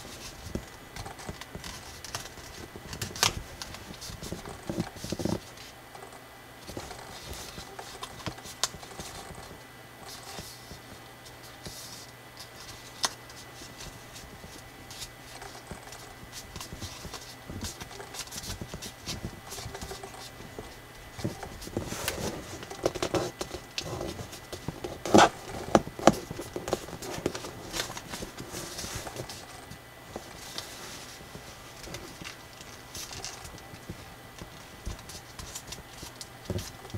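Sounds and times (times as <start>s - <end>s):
paper being folded and creased: 0.0s - 5.7s, 6.6s - 36.9s
sharp paper crackles: 0.0s - 5.7s.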